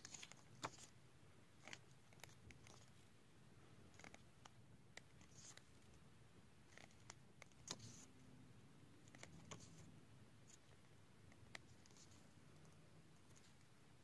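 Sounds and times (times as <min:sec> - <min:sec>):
pages turning: 0:00.0 - 0:00.9, 0:06.7 - 0:08.1.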